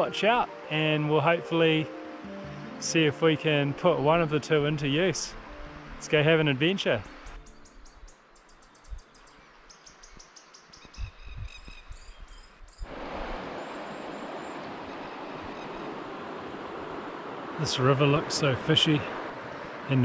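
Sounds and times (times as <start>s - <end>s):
faint birdsong: 5.4s - 16.2s
river rushing over stones: 12.8s - 20.0s.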